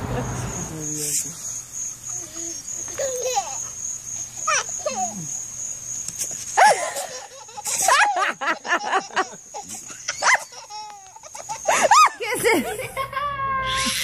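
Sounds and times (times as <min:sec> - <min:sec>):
crickets chirring: 0:00.0 - 0:14.0
people laughing: 0:06.6 - 0:13.4
baby squealing: 0:09.6 - 0:12.2, 0:13.1 - 0:14.0.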